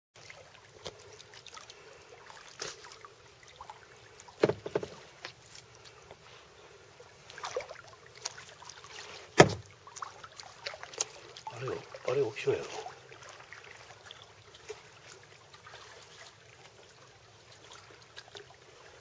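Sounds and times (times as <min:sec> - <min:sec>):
paddle splashing in water: 0:00.2 - 0:19.0
water dripping: 0:07.2 - 0:16.8.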